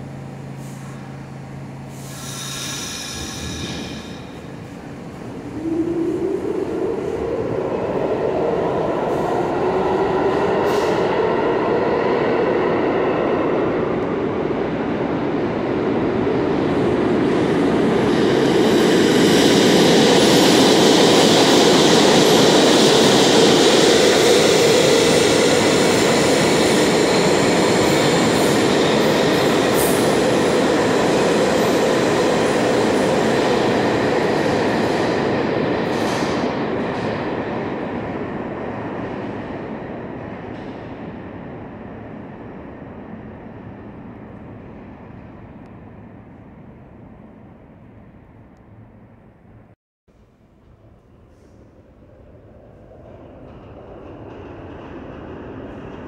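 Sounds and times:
subway train rumbling past: 0.0s - 56.0s
high hiss from wheels: 1.9s - 4.4s.

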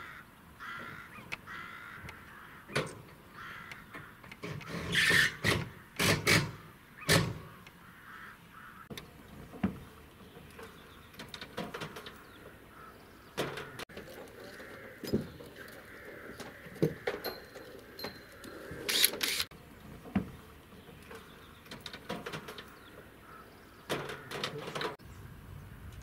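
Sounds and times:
metal knocks and clanks: 13.4s - 18.9s.

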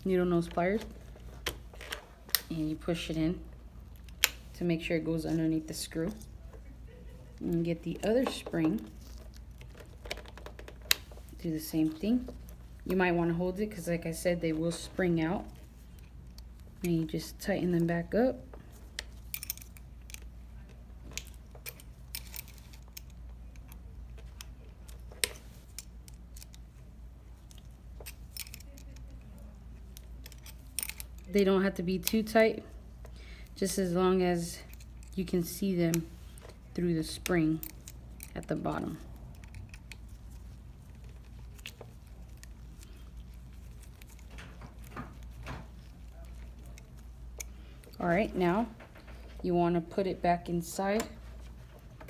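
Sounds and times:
steady low hum: 0.0s - 52.0s
allen key clicking on metal screws: 19.0s - 20.3s, 21.1s - 26.6s, 27.4s - 29.3s, 29.9s - 32.4s.

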